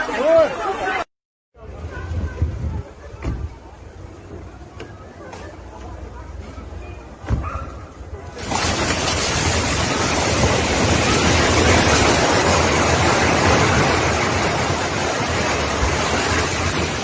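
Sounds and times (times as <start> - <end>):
building collapsing rumble: 8.2 - 17.0.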